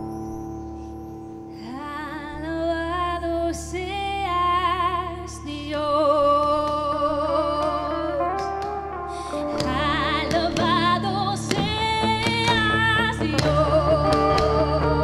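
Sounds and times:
woman singing with vibrato: 1.6s - 8.6s, 9.2s - 15.0s
worship band backing: 6.2s - 15.0s.

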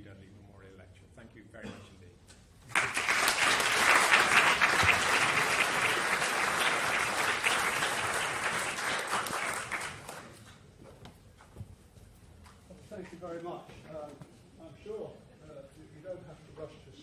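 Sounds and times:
audience applauding: 2.7s - 10.5s.

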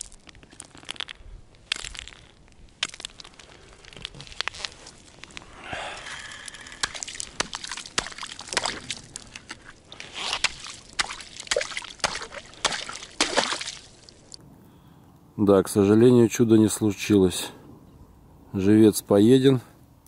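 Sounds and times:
slush sloshing in water: 6.8s - 14.4s.

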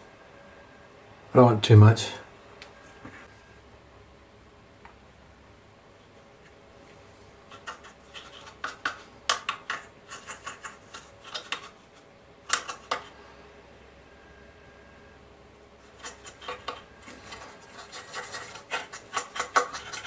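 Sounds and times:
paintbrush clicking and scratching: 7.5s - 11.8s, 12.5s - 13.1s, 15.8s - 20.0s.

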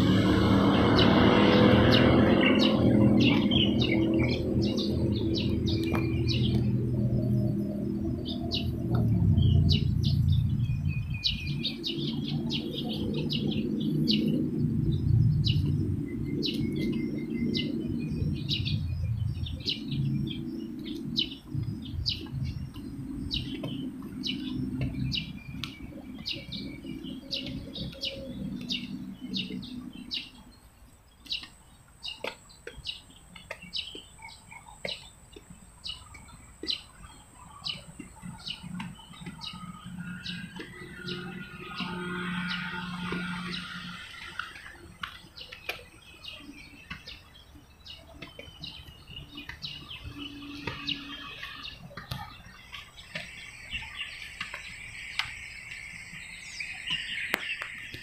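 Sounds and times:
low rumble: 0.0s - 30.4s
small birds chirping: 0.0s - 58.0s.

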